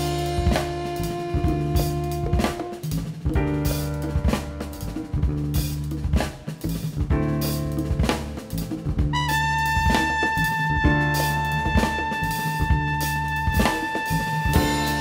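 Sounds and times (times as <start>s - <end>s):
drum kit hits: 0.0s - 15.0s
sustained bass line: 0.0s - 15.0s.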